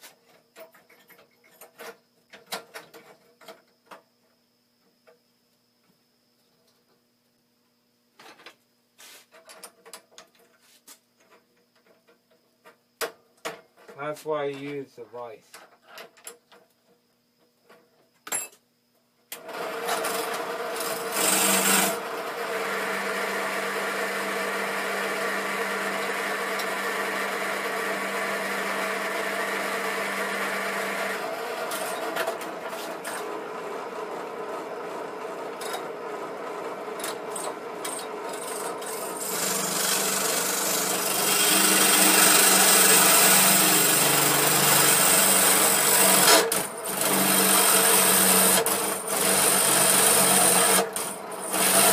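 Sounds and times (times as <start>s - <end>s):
drill press drilling: 19.3s - 51.9s.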